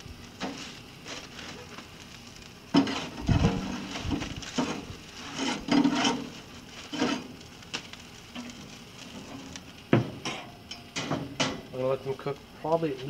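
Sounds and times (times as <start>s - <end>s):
foil crinkling: 0.0s - 10.2s
meat scraping on metal grate: 0.4s - 1.9s, 2.7s - 11.6s.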